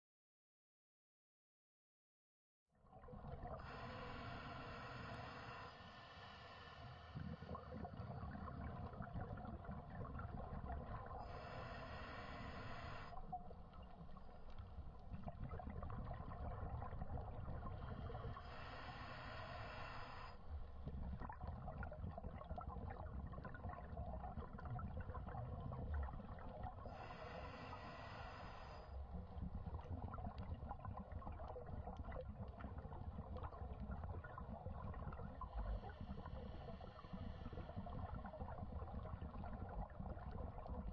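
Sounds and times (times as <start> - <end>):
gurgling exhaled bubbles: 2.9 - 40.9
regulator breathing hiss: 3.6 - 7.7, 11.2 - 13.2, 18.1 - 20.4, 26.9 - 28.9.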